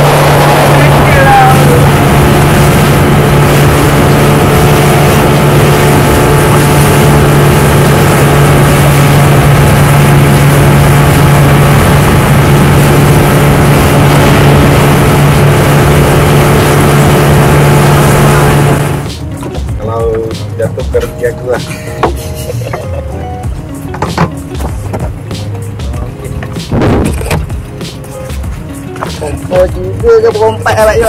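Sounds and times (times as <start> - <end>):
wind and water rushing: 0.0 - 19.9, 23.6 - 29.6
boat engine droning: 0.0 - 31.0.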